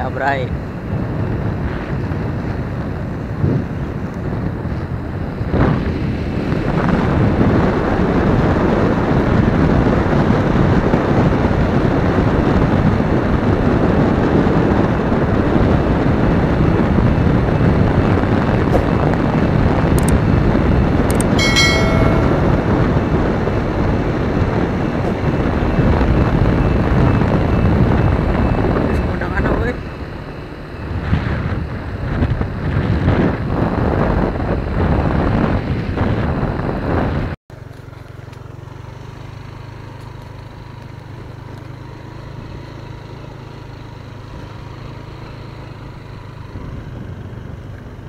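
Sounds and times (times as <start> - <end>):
wind rushing over microphone: 0.0 - 37.4
motorcycle running: 0.0 - 48.0
brief high-pitched sound: 21.4 - 23.2.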